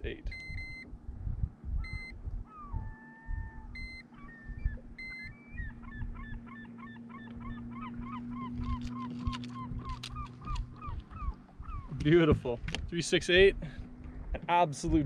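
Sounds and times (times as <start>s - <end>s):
digital scale beeping: 0.3s - 0.9s, 1.8s - 6.6s
bird calling rapid notes: 1.8s - 12.2s.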